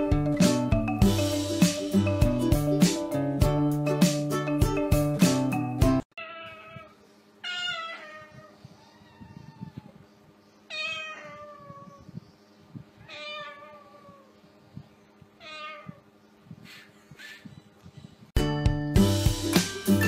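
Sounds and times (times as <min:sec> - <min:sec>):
cat meowing: 0:06.2 - 0:10.0, 0:10.7 - 0:12.1, 0:13.0 - 0:14.4, 0:15.4 - 0:16.1.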